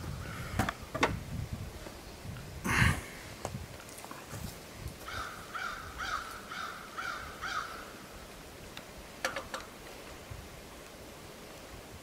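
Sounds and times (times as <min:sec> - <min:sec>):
bird calling: 0:05.0 - 0:08.1.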